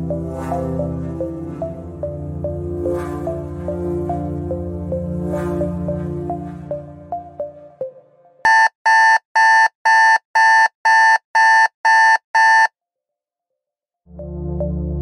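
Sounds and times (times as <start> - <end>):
background music: 0.0 - 8.5, 14.1 - 15.0
electronic alarm beeps: 8.5 - 12.7.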